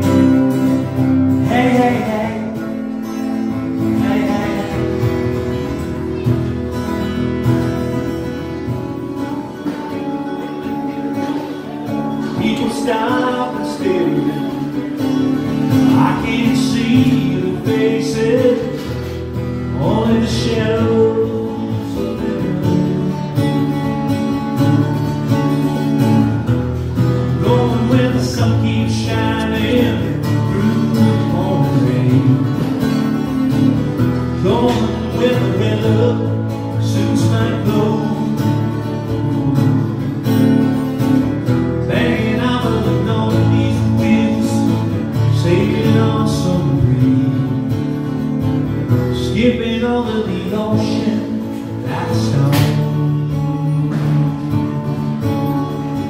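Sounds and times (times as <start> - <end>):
person singing: 0.0 - 6.7, 8.4 - 24.0, 27.2 - 33.2, 34.2 - 40.2
acoustic guitar strumming: 0.0 - 56.0.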